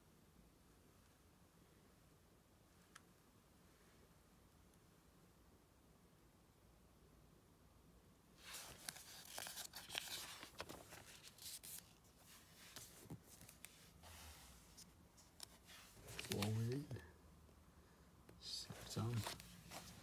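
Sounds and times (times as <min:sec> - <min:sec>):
magazine pages rustling: 0:08.4 - 0:17.0, 0:18.5 - 0:20.0.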